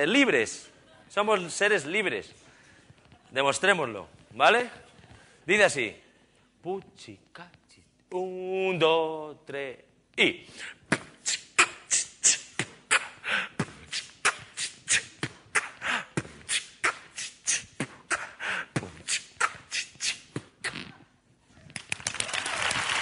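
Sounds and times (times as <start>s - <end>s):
person beatboxing: 10.6s - 21.2s.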